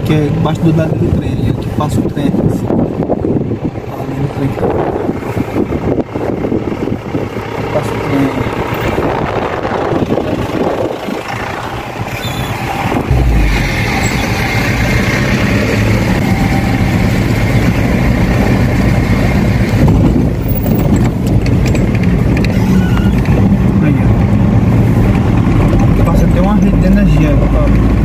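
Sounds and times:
tyres on dirt road: 0.0s - 28.0s
car engine from inside cabin: 4.7s - 28.0s.

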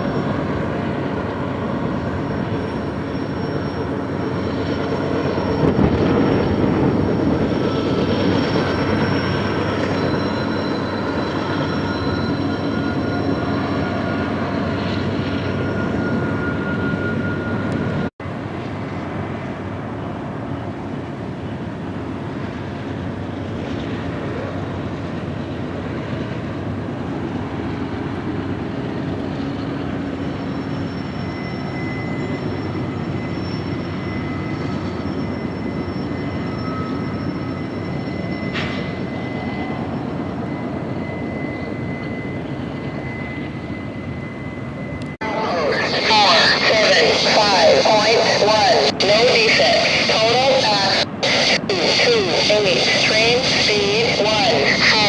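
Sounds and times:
diesel locomotives rumbling past: 0.0s - 51.2s
high squeal: 2.1s - 17.9s, 30.2s - 53.7s.

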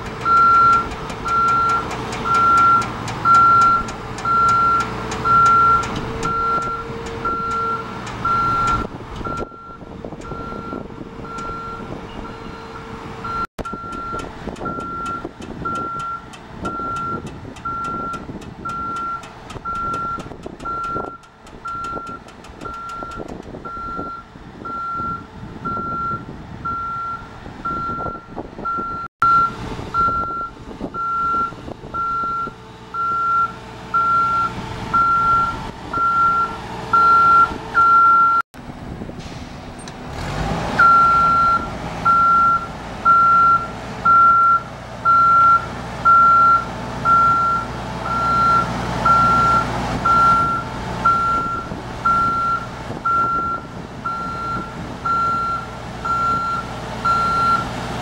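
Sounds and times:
engine and hydraulics running: 0.0s - 58.0s
motion alarm beeping: 0.3s - 11.8s.

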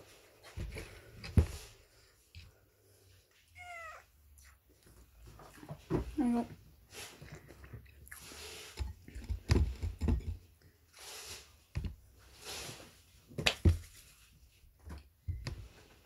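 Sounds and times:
chewing and wet mouth sounds: 7.2s - 8.5s.

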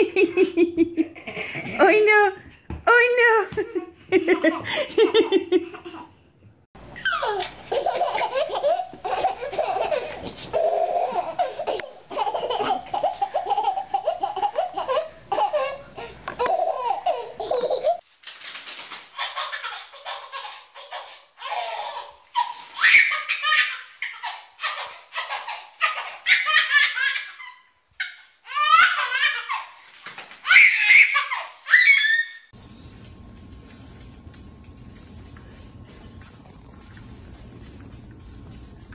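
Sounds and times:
baby laughing: 3.7s - 6.2s, 7.0s - 18.0s, 19.1s - 32.3s
baby squealing: 30.4s - 32.5s.

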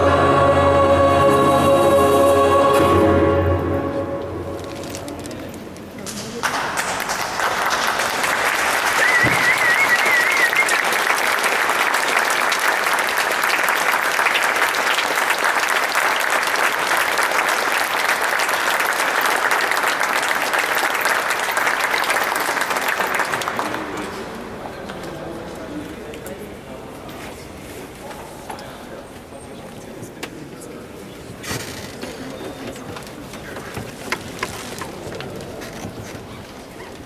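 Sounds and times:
choir chord: 0.0s - 4.9s
audience applause: 6.3s - 24.4s.

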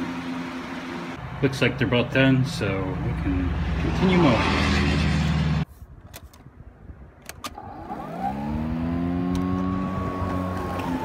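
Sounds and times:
lawn mower motor whine: 7.5s - 11.0s.

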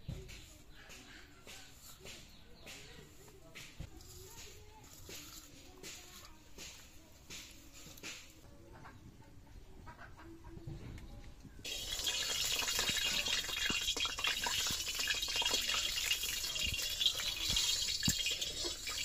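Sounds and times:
oil sizzling and crackling: 11.6s - 19.0s
metal spatula stirring: 11.7s - 19.0s.

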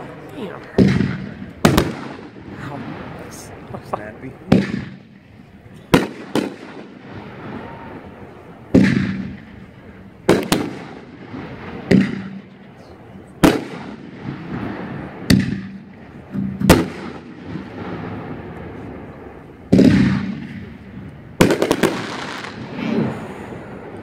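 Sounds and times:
fireworks bangs with rumbling echo: 0.6s - 24.0s
fireworks cracks: 0.6s - 24.0s.

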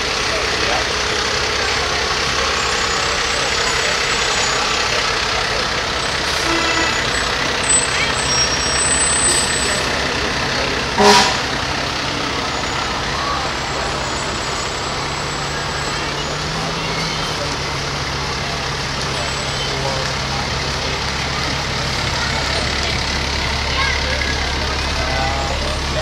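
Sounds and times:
diesel truck engines running: 0.0s - 26.0s
short sharp horn blast: 6.3s - 7.1s, 10.9s - 11.6s.

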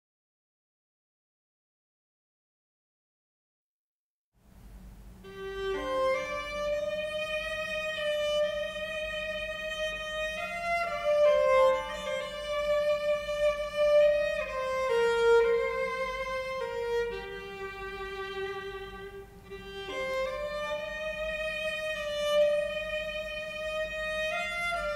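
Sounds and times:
solo violin melody: 5.2s - 24.9s.

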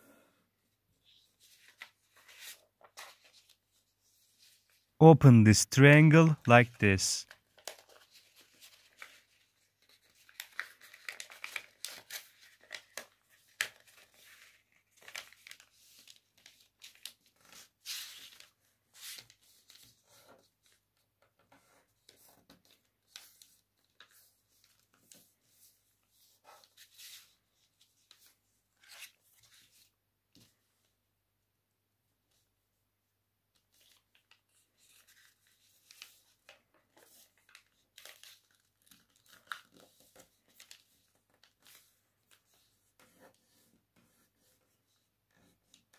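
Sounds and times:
paper rustling and crinkling: 1.2s - 4.8s, 7.4s - 19.9s, 33.7s - 44.7s.

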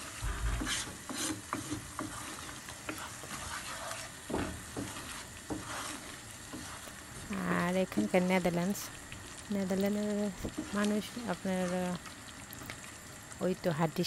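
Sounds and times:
wooden spatula scraping pan: 0.0s - 8.1s
food sizzling in frying pan: 0.0s - 14.0s.

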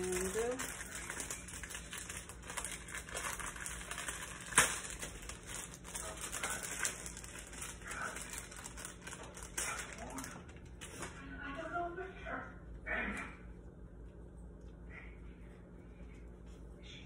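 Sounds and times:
paper wrapper crinkling: 0.0s - 11.1s.

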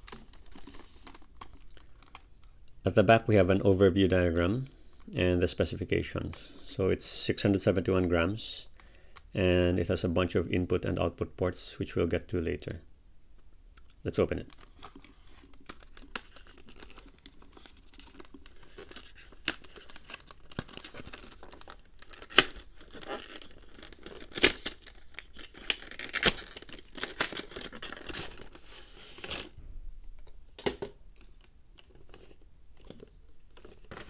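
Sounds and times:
cardboard and plastic rustling: 0.0s - 2.4s, 14.4s - 34.0s.

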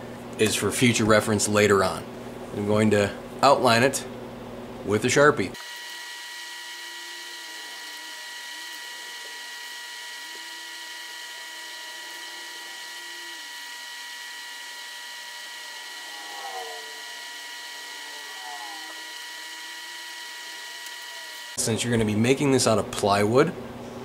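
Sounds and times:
high-pitched electrical whine: 5.5s - 22.1s.

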